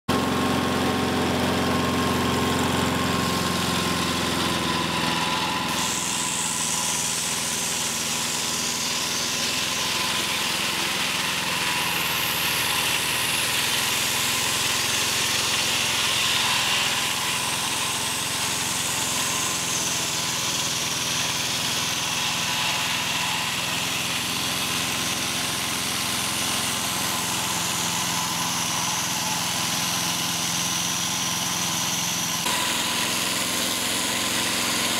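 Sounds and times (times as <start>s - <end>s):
circular blade cutting log: 0.1s - 34.9s
sawmill engine under load: 0.1s - 34.9s
machine whine: 0.2s - 34.9s.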